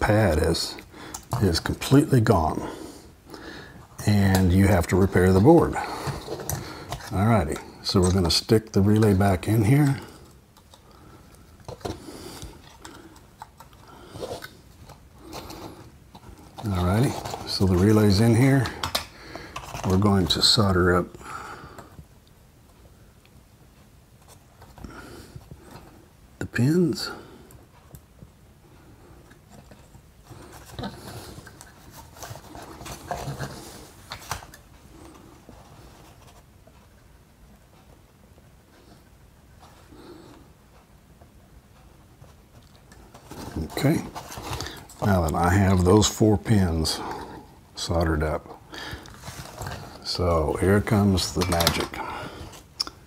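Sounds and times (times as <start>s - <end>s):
faint handling rustles and clicks: 0.0s - 53.0s.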